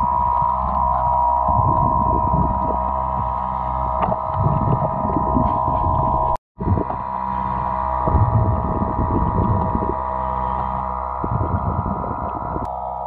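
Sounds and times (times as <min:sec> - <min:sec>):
steady underwater hum: 0:00.0 - 0:13.0.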